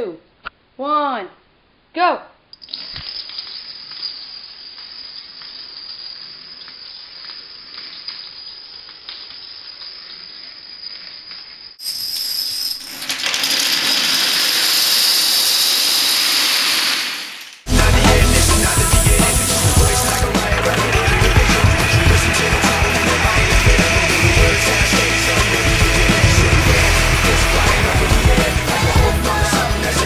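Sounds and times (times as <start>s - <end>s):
dominoes toppling clicks: 2.6s - 17.7s
dominoes collapsing clatter: 2.6s - 30.0s.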